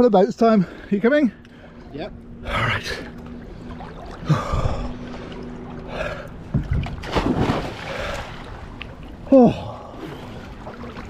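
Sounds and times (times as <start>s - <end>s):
faint steady hum: 0.0s - 11.0s
water splashing: 2.8s - 11.0s.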